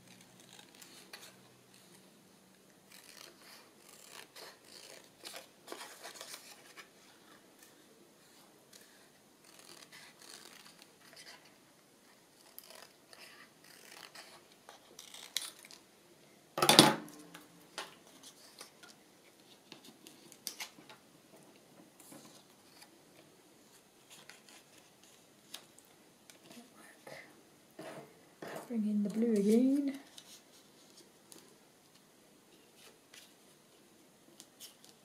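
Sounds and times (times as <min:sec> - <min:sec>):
paper rustling: 0:02.9 - 0:15.8.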